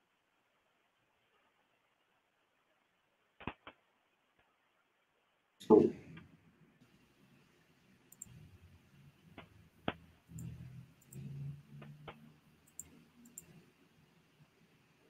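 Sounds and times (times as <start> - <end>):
computer mouse clicks: 8.1 - 8.5, 9.3 - 13.6.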